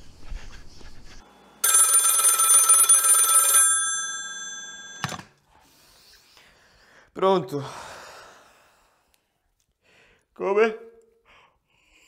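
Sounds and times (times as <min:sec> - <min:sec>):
telephone bell ringing: 0:01.6 - 0:05.4.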